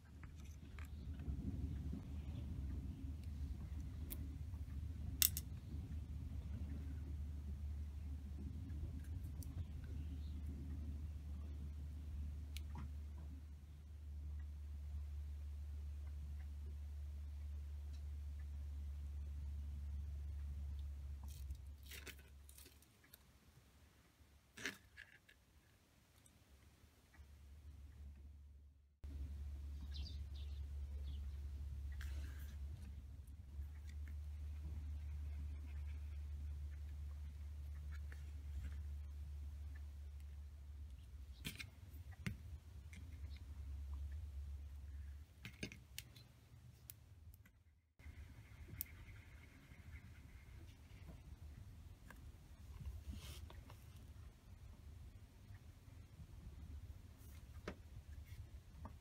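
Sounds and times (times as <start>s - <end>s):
low hum: 0.0s - 21.8s, 26.8s - 59.0s
light clicks and rustles of beads: 20.8s - 23.4s.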